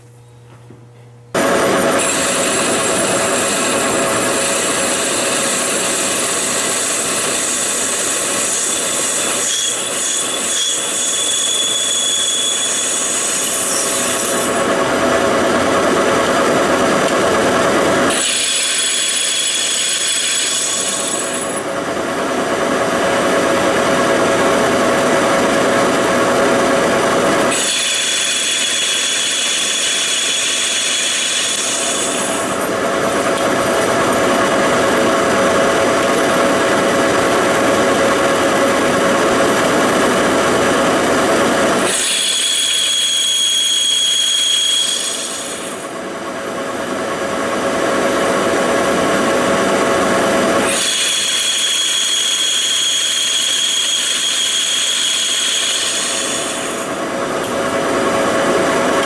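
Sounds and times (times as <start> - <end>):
high-pitched ringing squeal: 2.0 - 14.6, 41.9 - 45.8, 50.7 - 56.9.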